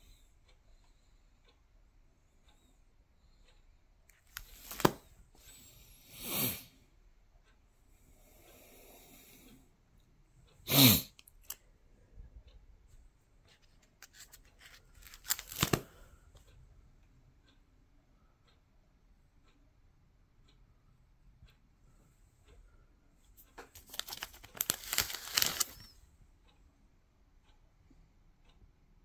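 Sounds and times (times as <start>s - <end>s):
plastic pages rustling: 4.3s - 5.0s, 13.6s - 16.0s, 23.7s - 25.9s.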